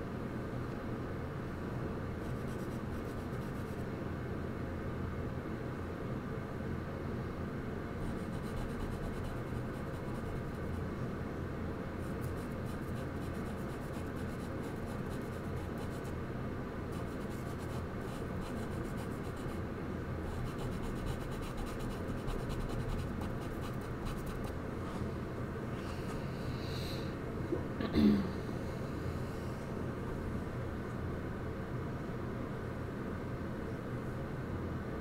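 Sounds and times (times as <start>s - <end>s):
steady low hum: 0.0s - 35.0s
charcoal scratching on paper: 2.3s - 3.8s, 8.0s - 10.8s, 12.1s - 16.1s, 17.0s - 19.6s, 20.3s - 24.5s.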